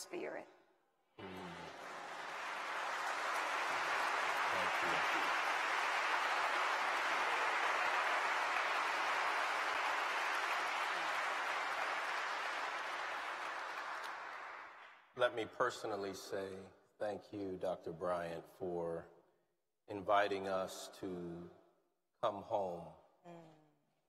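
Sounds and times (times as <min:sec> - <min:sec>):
audience applauding: 0:01.2 - 0:14.8.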